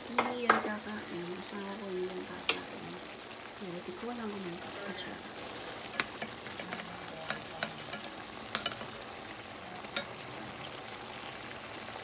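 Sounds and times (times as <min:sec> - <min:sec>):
pot simmering hiss: 0:00.0 - 0:12.0
spoon clinking against pan: 0:05.9 - 0:09.0, 0:09.9 - 0:10.2.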